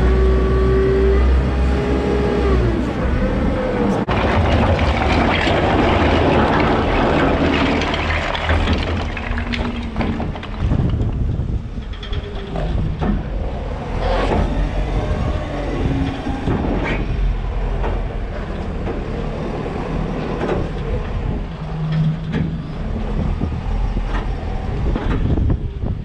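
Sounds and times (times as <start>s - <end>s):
diesel engine running: 0.0s - 26.0s
steel bucket clanking and rattling: 4.1s - 13.3s.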